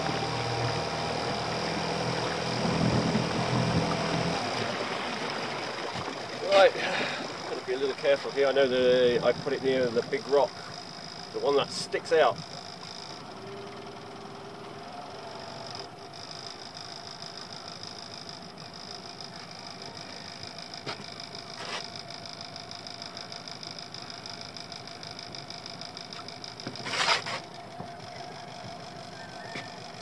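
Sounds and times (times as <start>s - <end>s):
outboard motor running: 0.0s - 30.0s.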